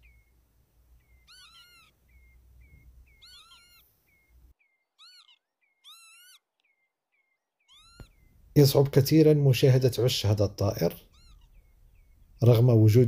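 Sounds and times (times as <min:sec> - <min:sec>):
lapwings giving wheezy calls: 0:01.0 - 0:08.5, 0:11.0 - 0:12.4
short high bird chips: 0:03.1 - 0:06.8, 0:07.7 - 0:08.4.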